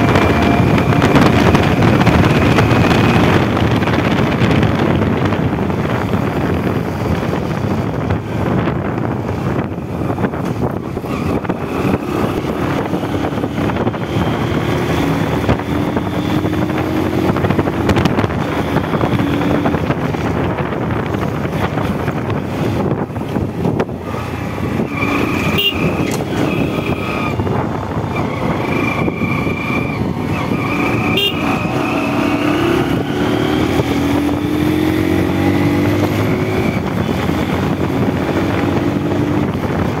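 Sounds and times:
motorcycle engine running: 0.0 - 40.0
wind rushing on microphone: 0.0 - 40.0.

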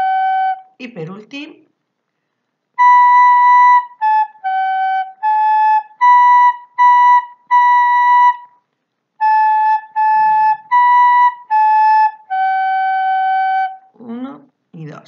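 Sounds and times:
recorder playing tongued notes: 0.0 - 0.7, 2.7 - 8.6, 9.2 - 13.9.

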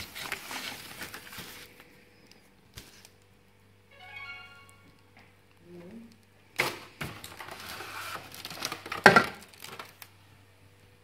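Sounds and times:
plastic bag crinkling: 0.0 - 1.9, 6.6 - 10.1.

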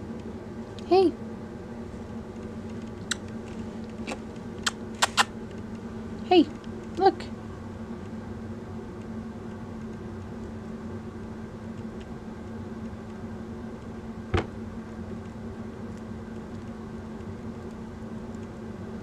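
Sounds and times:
mechanical hum: 0.0 - 19.0
sharp click: 4.6 - 5.3.

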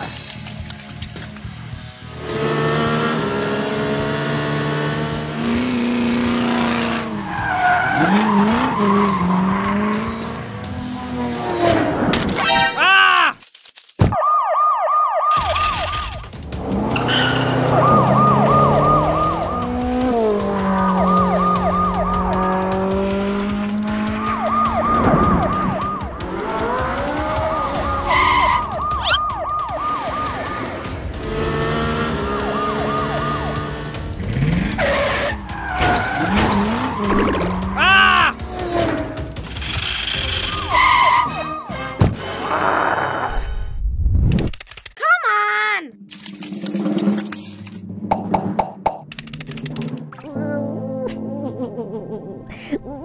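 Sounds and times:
police siren yelping: 14.2 - 16.2, 17.1 - 20.0, 20.7 - 22.6, 24.1 - 26.3, 27.1 - 30.9, 32.1 - 33.6
lower sliding siren tones: 17.1 - 22.6, 24.2 - 26.3, 27.3 - 30.7.

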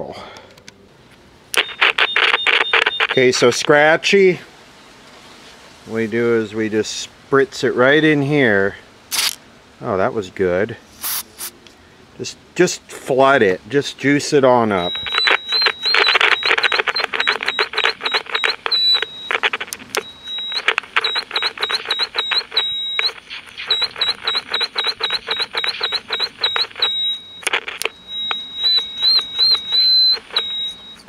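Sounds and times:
radio whistle squeal chirping: 1.6 - 3.7, 14.7 - 31.0
scratchy radio crackling: 1.6 - 4.0, 14.6 - 31.0.

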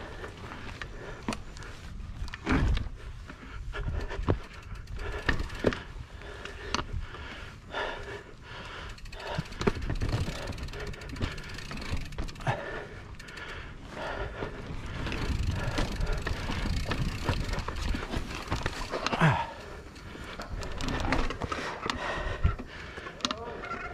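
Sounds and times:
bicycle tyre rumble: 0.0 - 23.9
bike knocks and rattles: 2.2 - 5.9, 9.0 - 13.3, 15.0 - 19.5, 20.4 - 23.4
wind buffeting microphone: 14.5 - 18.8.

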